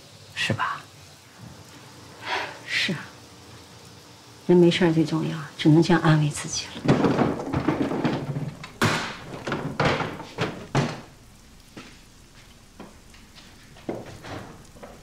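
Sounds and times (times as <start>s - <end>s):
clattering from rummaging: 6.8s - 11.1s
wooden drawers opening and shutting: 6.8s - 11.1s.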